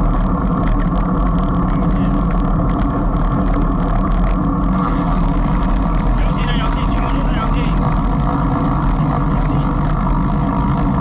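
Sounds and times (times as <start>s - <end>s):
tyres rumbling on asphalt: 0.0s - 11.0s.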